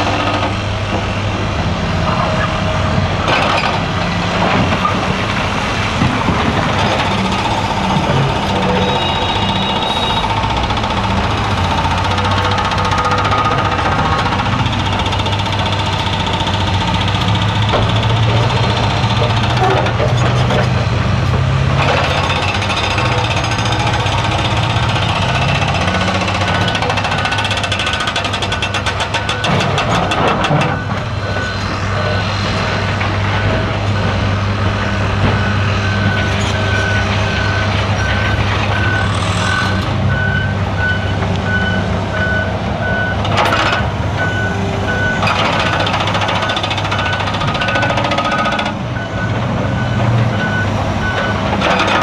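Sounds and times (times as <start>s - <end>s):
diesel excavator engines: 0.0s - 52.0s
hydraulic breaker hammering: 6.0s - 20.4s, 21.7s - 30.9s
reversing alarm beeping: 7.0s - 16.2s, 21.9s - 34.3s, 34.9s - 52.0s.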